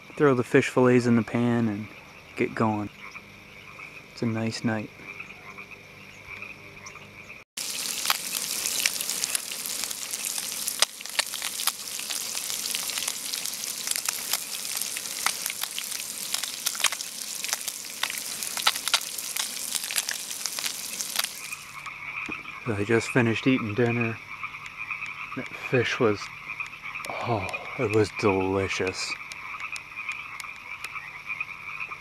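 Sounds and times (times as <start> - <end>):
frogs calling: 0.0 - 32.0
oil popping and spitting: 7.6 - 21.8, 27.0 - 28.2
fish frying in oil: 7.6 - 21.9.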